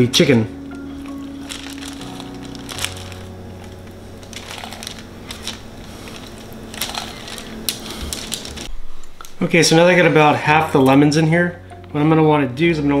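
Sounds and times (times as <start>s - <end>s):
soft crackles of chicken skin: 0.9s - 8.7s.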